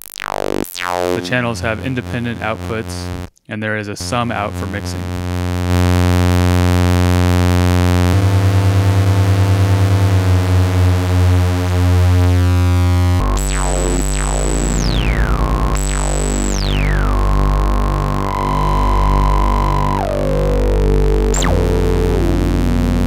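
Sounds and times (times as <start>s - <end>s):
high synth tones sweeping down: 0.0s - 3.3s, 13.0s - 23.0s
synthesizer drone pulsing: 0.0s - 3.3s, 5.1s - 23.0s.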